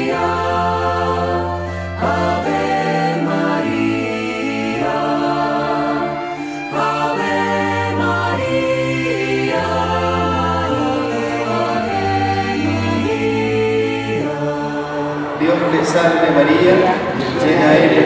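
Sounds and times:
voices singing a hymn: 0.0 - 18.0.

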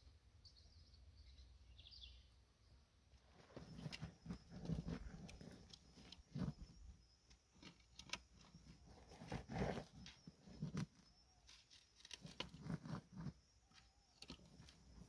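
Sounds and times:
scratching of loose soil: 3.2 - 15.0
armadillo snuffling: 3.3 - 15.0.

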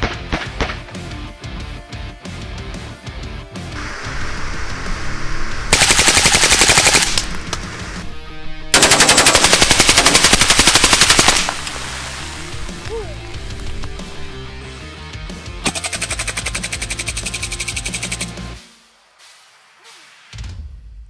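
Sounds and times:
automatic rifle bursts: 15.6 - 18.3.

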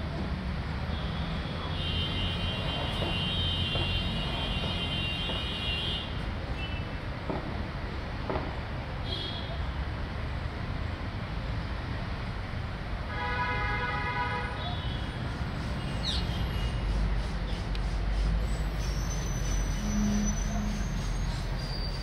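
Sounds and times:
city traffic rumble: 0.0 - 22.0
falling whistle: 18.9 - 21.9
horn-like call: 19.8 - 21.1.

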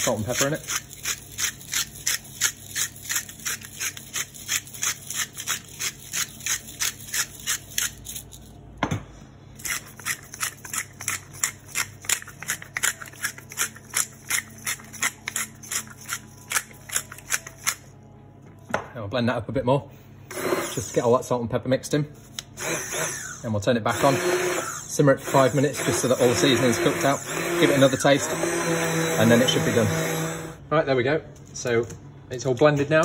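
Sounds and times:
seasoning mill grinding: 0.0 - 8.5, 9.6 - 17.9, 23.9 - 30.5.

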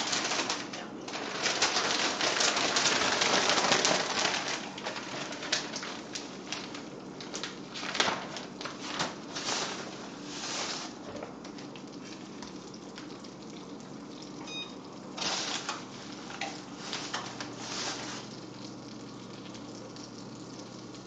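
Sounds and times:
butter sizzling in frying pans: 14.8 - 21.0.

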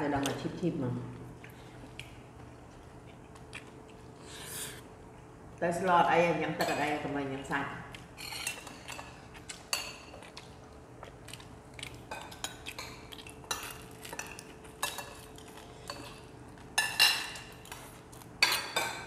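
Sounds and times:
spoons clinking on plates: 16.8 - 17.8.

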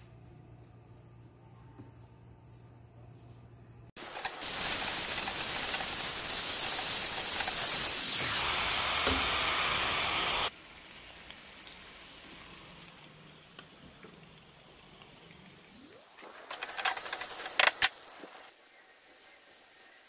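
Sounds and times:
onions and meat sizzling in a pan: 4.0 - 20.0.

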